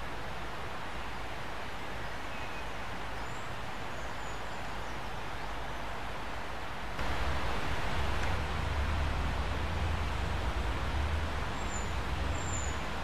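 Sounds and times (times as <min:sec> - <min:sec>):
river water running over stones: 0:05.3 - 0:13.0
faint bird chirps: 0:11.5 - 0:12.9.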